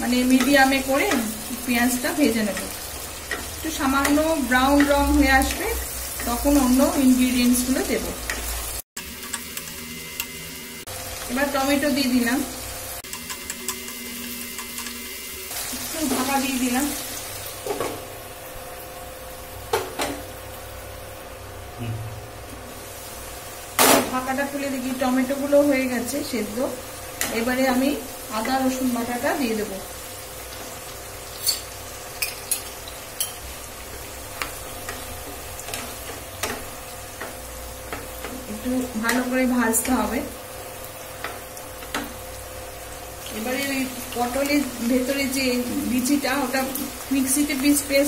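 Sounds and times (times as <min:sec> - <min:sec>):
onion and tomato sizzling in oil: 0:00.0 - 0:48.0
utensils tapping pan: 0:02.4 - 0:05.6.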